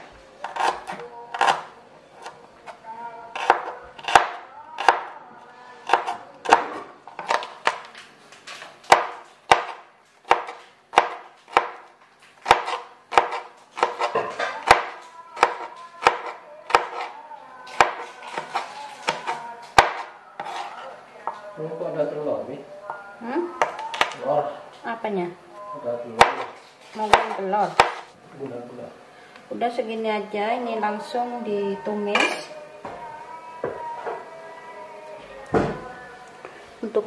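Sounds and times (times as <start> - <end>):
knife chopping on plastic board: 5.9 - 7.9, 8.9 - 17.1, 17.7 - 20.7, 26.2 - 28.1.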